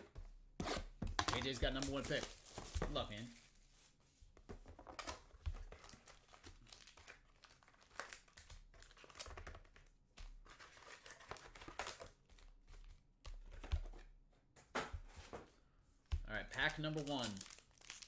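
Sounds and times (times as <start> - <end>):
foil card packs crinkling: 1.4 - 3.3, 5.7 - 9.6, 16.4 - 18.0.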